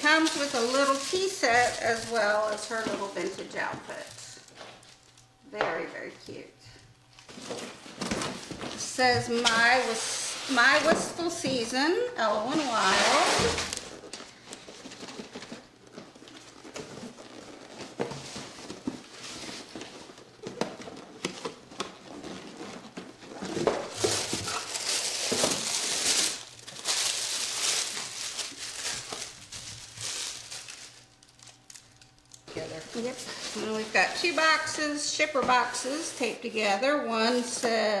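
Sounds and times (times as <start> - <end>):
tissue paper crinkling: 0.0 - 5.3, 12.2 - 35.0.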